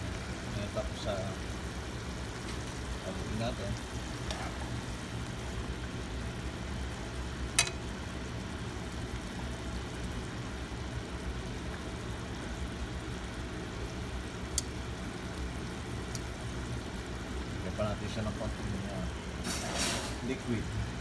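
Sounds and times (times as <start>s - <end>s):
light stirring in wok: 0.0s - 18.5s
low cooking hum: 0.0s - 21.0s
metal tongs knocking on pan: 7.6s - 7.8s.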